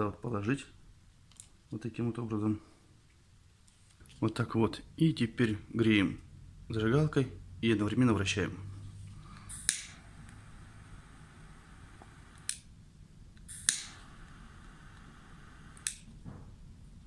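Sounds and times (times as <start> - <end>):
lighter flame hissing: 9.2 - 12.7, 13.4 - 16.1
lighter clicking: 9.4 - 10.4, 13.4 - 15.1, 15.7 - 16.1.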